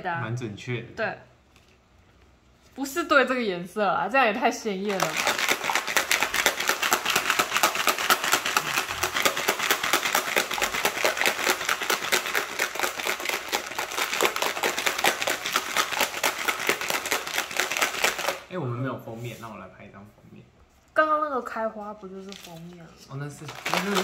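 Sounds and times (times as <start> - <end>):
ice cubes rattling in shaker bottle: 4.9 - 18.5, 23.4 - 24.0.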